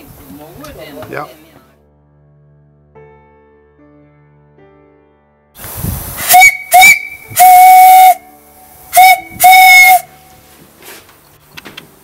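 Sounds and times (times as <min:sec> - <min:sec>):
steam hissing: 0:05.6 - 0:11.1
steam whistle blasts: 0:06.2 - 0:10.3.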